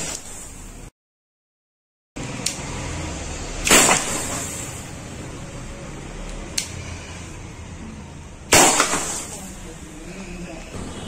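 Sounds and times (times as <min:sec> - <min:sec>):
air pistol gas pop: 0:00.0 - 0:00.5, 0:03.6 - 0:04.6, 0:08.5 - 0:09.3.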